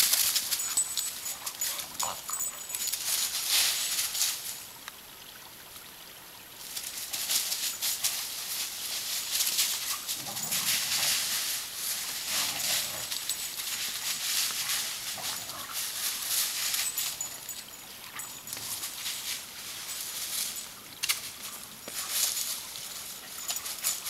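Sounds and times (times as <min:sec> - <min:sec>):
dry leaves crunching underfoot: 0:18.6 - 0:24.0.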